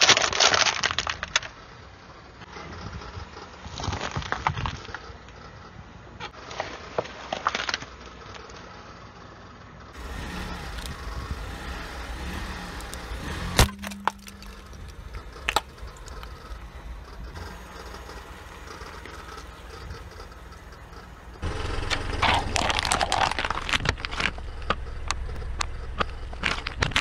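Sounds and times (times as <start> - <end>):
coconut cracking under tyre: 0.0 - 1.6, 10.7 - 19.9, 21.4 - 27.0
crunching clicks: 0.0 - 1.6, 10.0 - 27.0
car tyre rolling over objects: 0.0 - 27.0
low engine and tyre rumble: 0.0 - 27.0.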